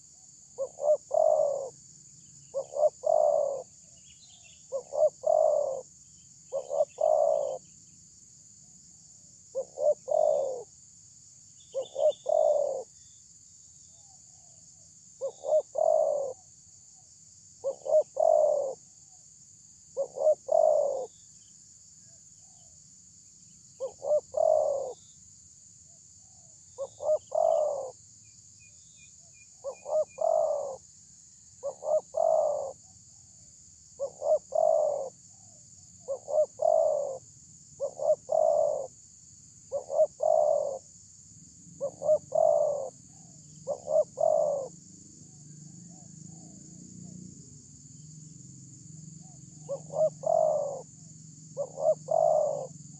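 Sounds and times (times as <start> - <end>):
dove cooing: 0.6 - 1.8, 2.5 - 3.8, 4.7 - 5.9, 6.5 - 7.6, 9.5 - 10.7, 11.7 - 12.9, 15.2 - 16.5, 17.6 - 18.9, 20.0 - 21.1, 23.8 - 25.0, 26.8 - 28.0, 29.6 - 30.8, 31.6 - 32.8, 34.0 - 37.2, 37.8 - 38.9, 39.7 - 40.9, 41.8 - 44.8, 49.2 - 50.9, 51.5 - 52.8.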